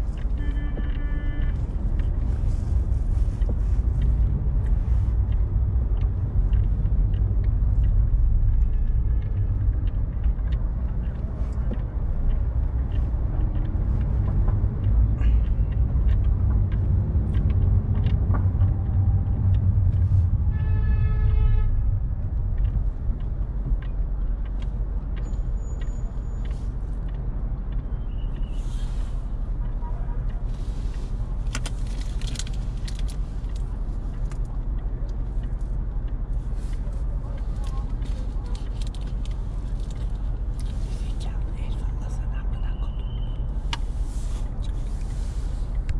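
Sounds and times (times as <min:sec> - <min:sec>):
car driving rumble: 0:00.0 - 0:45.9.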